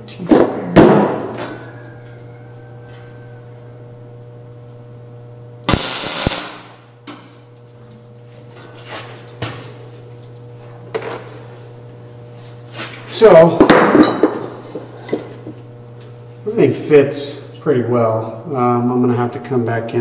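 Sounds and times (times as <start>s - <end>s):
steady low hum: 0.0s - 20.0s
welding crackling hiss: 5.7s - 6.9s.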